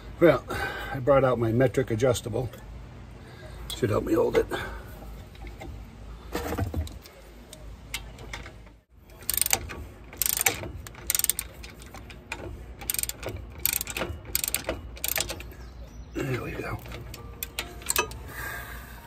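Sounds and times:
hand ratchet clicking: 9.1 - 15.6, 16.8 - 18.3.

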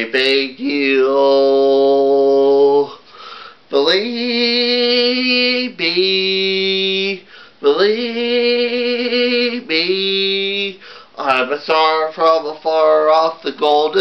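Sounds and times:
man singing long notes: 0.0 - 3.0, 3.7 - 14.0
man breathing: 2.9 - 3.7, 7.2 - 7.6, 10.8 - 11.2.

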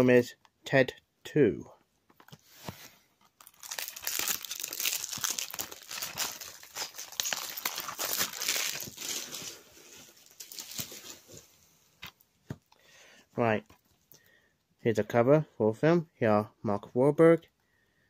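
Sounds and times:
plastic packaging crinkling: 3.3 - 11.5.

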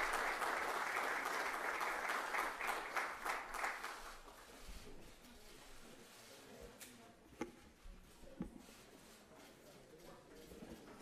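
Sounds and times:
people applauding: 0.0 - 4.4.

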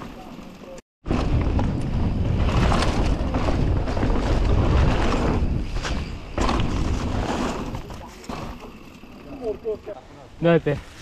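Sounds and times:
wind buffeting microphone: 1.0 - 7.9
knocks from bike on trail: 1.1 - 9.0.

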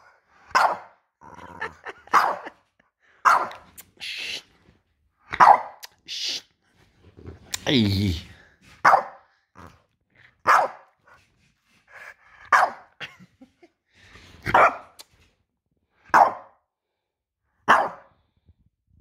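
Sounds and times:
dog barking: 0.5 - 1.0, 2.0 - 2.6, 3.2 - 3.6, 5.3 - 5.8, 8.8 - 9.2, 10.4 - 10.9, 12.5 - 12.9, 14.5 - 15.0, 16.1 - 16.6, 17.6 - 18.1.

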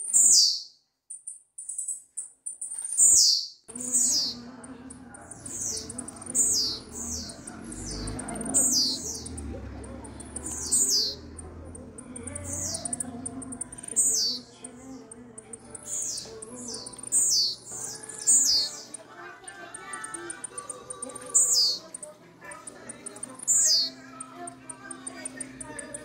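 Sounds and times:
bird singing high descending note: 5.4 - 14.5, 15.7 - 22.0, 22.7 - 26.0.

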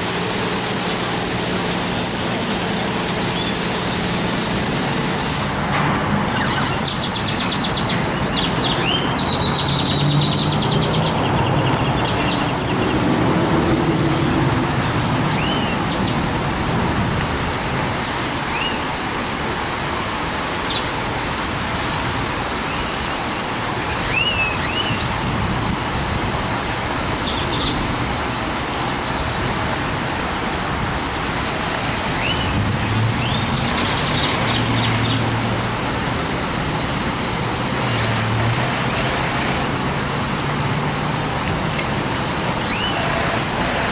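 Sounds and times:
car wash water spray and machinery: 0.0 - 43.9
birds chirping: 6.3 - 13.0, 27.1 - 27.8, 32.0 - 35.4, 42.6 - 43.9.

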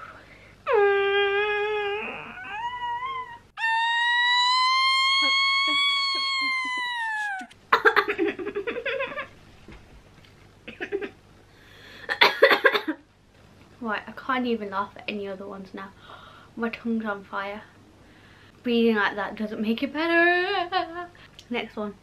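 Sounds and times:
high wailing cry: 0.7 - 7.6.

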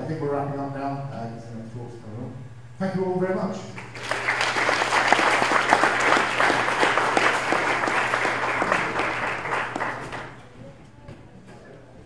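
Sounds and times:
audience applauding: 3.8 - 10.5.

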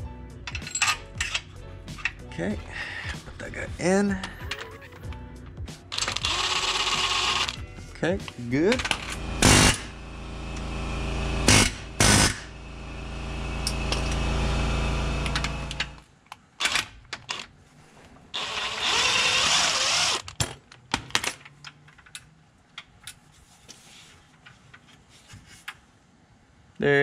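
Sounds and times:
metal parts clicking: 0.5 - 2.2
steady low hum: 5.1 - 16.0
impact wrench hammering: 8.8 - 10.0, 11.4 - 12.6.

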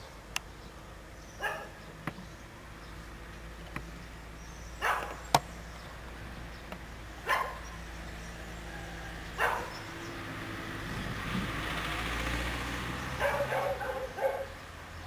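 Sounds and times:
dog barking: 1.4 - 1.8, 4.8 - 5.2, 7.2 - 7.7, 8.7 - 9.8, 13.2 - 14.6.

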